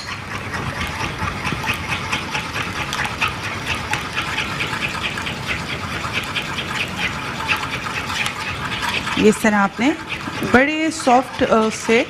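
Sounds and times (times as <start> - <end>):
metal spoon scraping saucepan: 0.0 - 3.1, 6.2 - 12.0.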